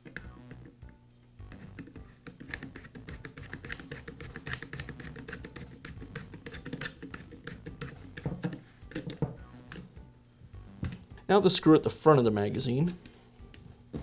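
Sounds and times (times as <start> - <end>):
screwdriver clicking and scraping: 1.5 - 5.4, 6.4 - 9.9.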